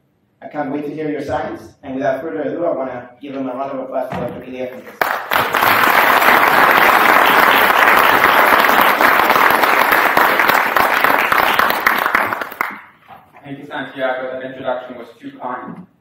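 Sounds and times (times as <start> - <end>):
audience applauding: 5.0 - 13.0.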